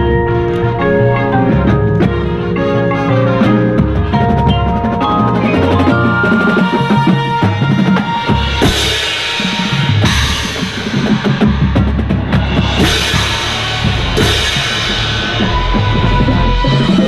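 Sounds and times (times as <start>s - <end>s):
drum corps percussion: 0.0s - 17.0s
bass drum hits: 10.0s - 16.7s.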